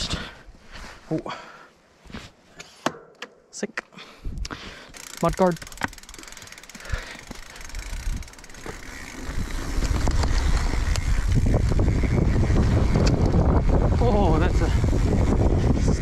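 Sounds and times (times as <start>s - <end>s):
bike clicks and knocks: 2.6s - 3.5s, 4.5s - 11.9s, 12.9s - 13.5s
wind buffeting camera microphone: 4.2s - 4.6s, 6.9s - 16.0s
bike tyres rolling on dirt: 4.7s - 16.0s.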